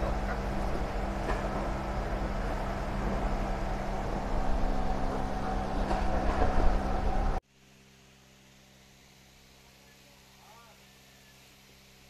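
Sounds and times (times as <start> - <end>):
machine humming: 0.0 - 7.4.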